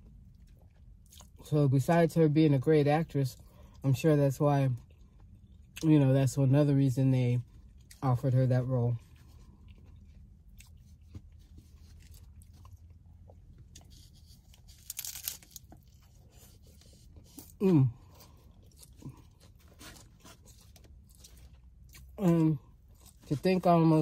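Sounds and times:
taco shell crunching: 0:00.0 - 0:01.5, 0:07.4 - 0:24.0.

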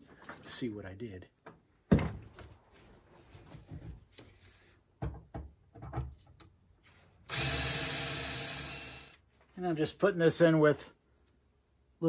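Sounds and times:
cordless drill running: 0:07.3 - 0:09.2.

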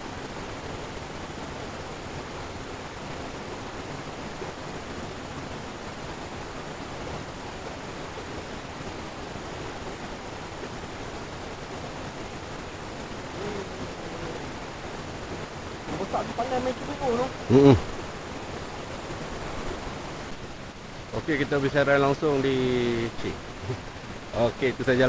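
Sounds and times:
stream rapid rushing: 0:00.0 - 0:25.0.

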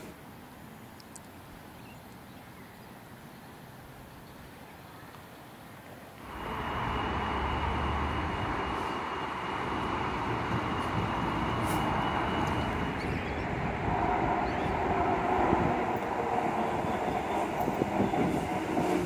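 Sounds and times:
electric train running: 0:06.2 - 0:19.0
thin high whine: 0:06.2 - 0:19.0.

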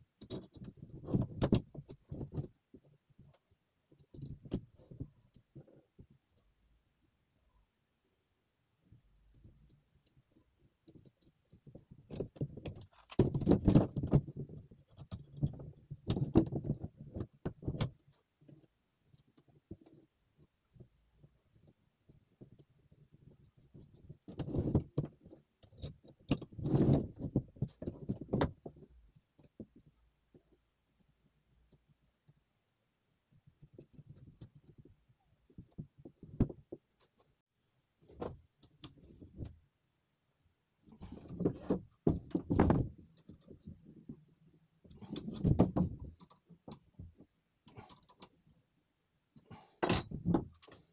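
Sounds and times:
metal vise parts clanking on wood: 0:49.5 - 0:50.9.

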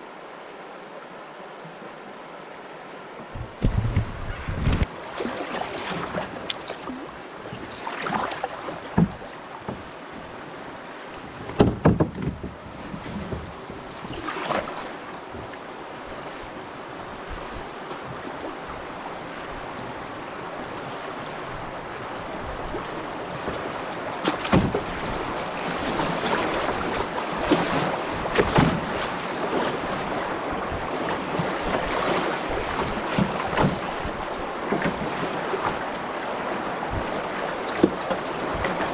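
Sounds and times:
rushing river water: 0:00.0 - 0:38.9
sharp water splashes: 0:04.8 - 0:09.3.

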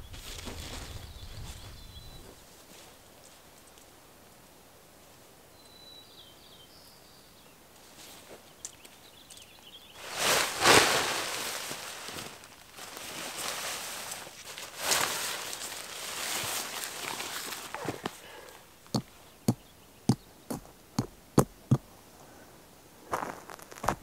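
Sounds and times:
tent fabric rustling and swishing: 0:00.0 - 0:03.0, 0:10.0 - 0:18.2.

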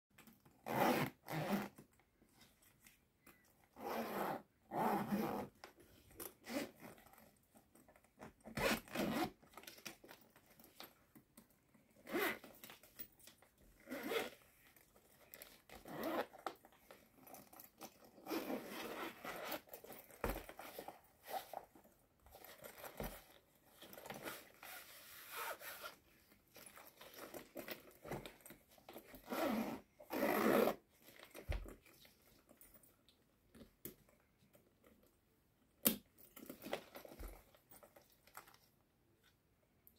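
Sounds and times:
zipper pulled open and shut: 0:00.4 - 0:01.9, 0:03.4 - 0:07.4, 0:08.0 - 0:10.9, 0:11.8 - 0:32.1
leather rubbing: 0:08.6 - 0:09.2, 0:13.8 - 0:14.3.

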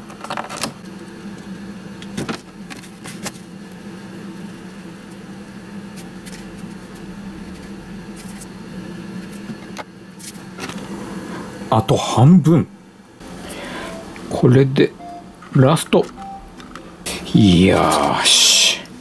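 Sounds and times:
low hum: 0:03.6 - 0:09.5, 0:10.9 - 0:19.0.

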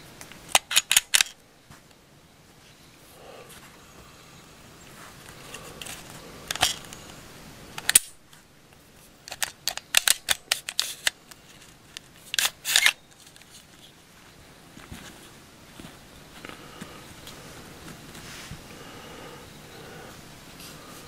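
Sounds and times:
pistol parts clicking: 0:00.2 - 0:01.4, 0:05.8 - 0:07.1, 0:07.8 - 0:08.2, 0:09.2 - 0:13.7
pistol slide sliding clatter: 0:00.5 - 0:01.4, 0:09.3 - 0:11.2, 0:12.3 - 0:13.0.

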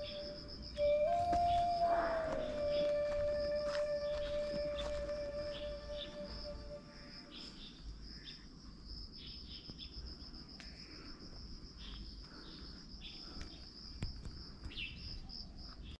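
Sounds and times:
bird chirps: 0:00.0 - 0:08.5, 0:14.7 - 0:16.0
high-pitched insect trill: 0:00.0 - 0:10.4.

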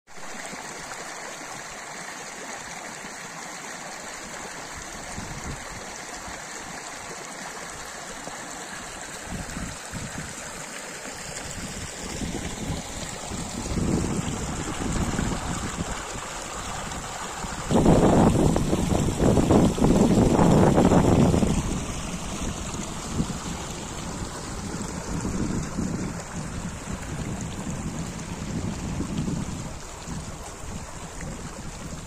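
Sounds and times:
small water cascade: 0:00.1 - 0:32.0
stream flowing over stones: 0:00.1 - 0:32.0.

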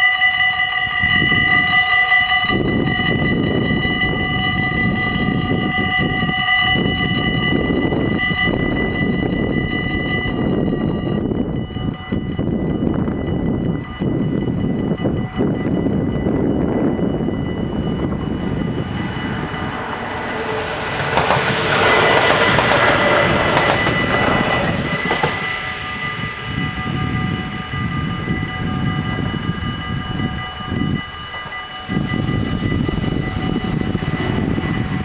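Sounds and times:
electric train passing: 0:00.0 - 0:35.0
level crossing bells ringing: 0:00.0 - 0:35.0
low rumble: 0:16.7 - 0:30.5.

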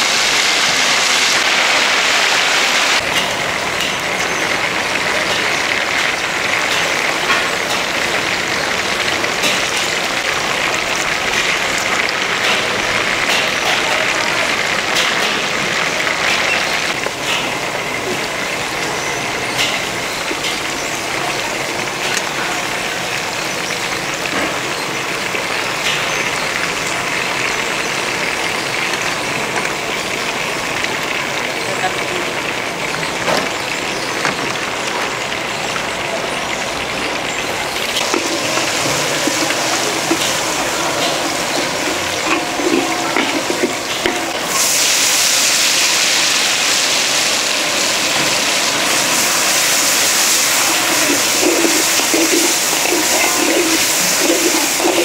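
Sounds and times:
food frying hiss: 0:00.0 - 0:55.0.

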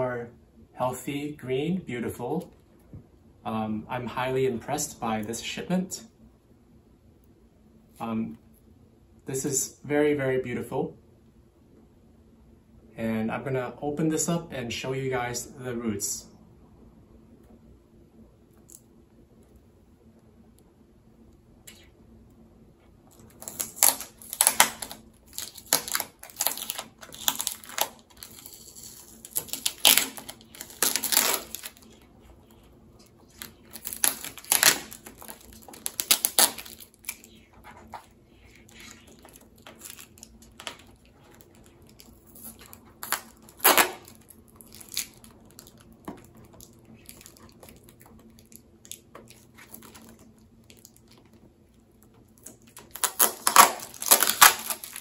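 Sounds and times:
packaging crinkling and tearing: 0:23.1 - 0:55.0.

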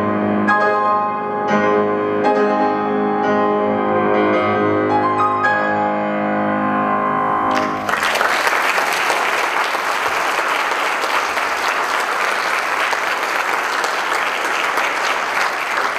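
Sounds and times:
audience applause: 0:07.5 - 0:15.9.

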